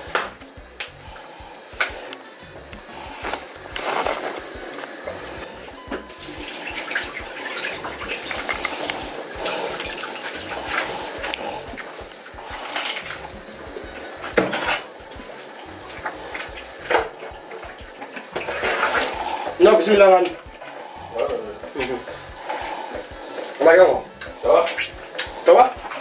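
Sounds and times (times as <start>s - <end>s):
tap running: 0.0s - 26.0s
clatter of pots and utensils: 14.2s - 15.2s.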